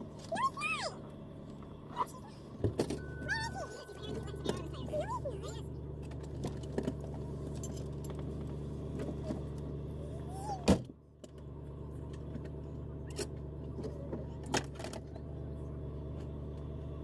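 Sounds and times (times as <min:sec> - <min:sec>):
vehicle engine idling: 0:00.0 - 0:17.0.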